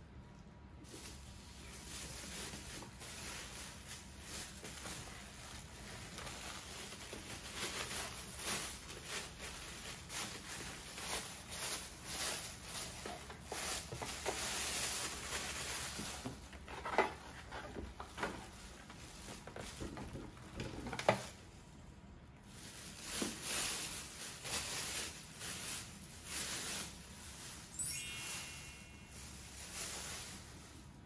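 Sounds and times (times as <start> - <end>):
plastic bag rustling: 0.8 - 21.5, 22.4 - 31.0.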